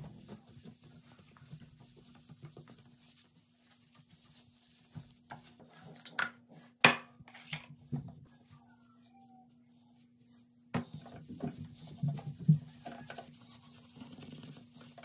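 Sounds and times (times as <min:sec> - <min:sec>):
cloth rubbing sink basin: 0:00.0 - 0:06.8, 0:10.0 - 0:15.0.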